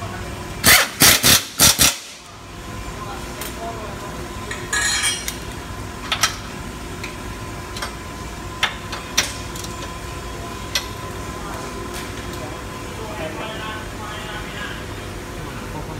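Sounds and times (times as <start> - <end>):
workshop hum: 0.0 - 15.9
metal tools clicking and clinking: 4.5 - 5.4.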